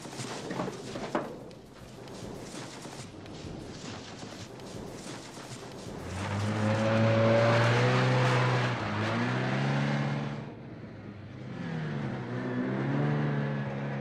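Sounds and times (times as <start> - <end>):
car engine accelerating hard: 5.8 - 14.0.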